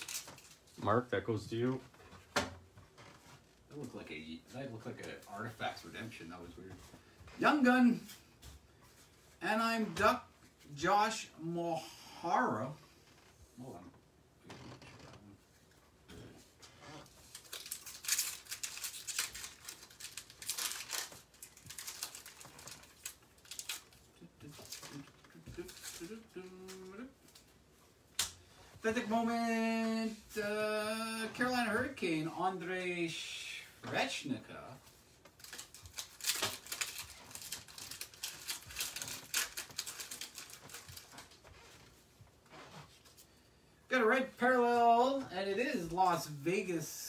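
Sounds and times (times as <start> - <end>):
card pack wrapper tearing: 0.0 - 0.6, 17.2 - 26.2, 35.4 - 41.4
cards rustling: 0.0 - 0.8, 17.1 - 27.5, 35.0 - 42.0.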